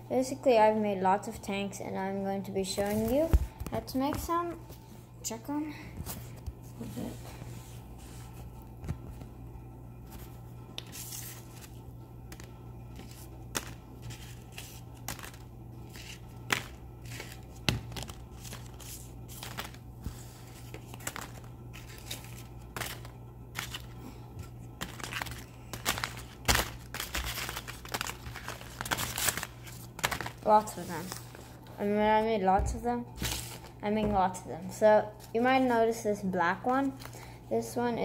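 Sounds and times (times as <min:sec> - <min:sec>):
steady low hum: 0:00.0 - 0:38.0
paper rustling and crinkling: 0:02.7 - 0:04.9, 0:10.1 - 0:31.8, 0:33.2 - 0:33.8.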